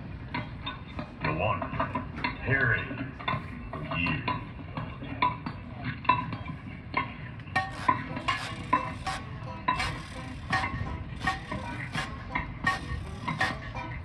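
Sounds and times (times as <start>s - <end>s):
marching band metal percussion: 7.5s - 14.0s.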